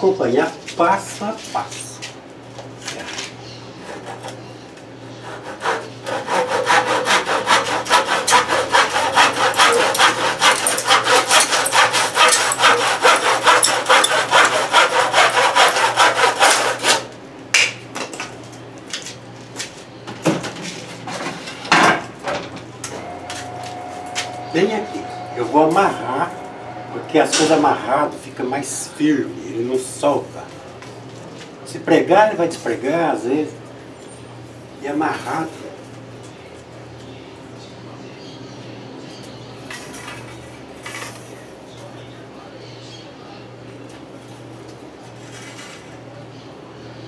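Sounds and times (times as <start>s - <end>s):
handsaw cutting wood: 5.2s - 17.1s, 23.0s - 28.1s.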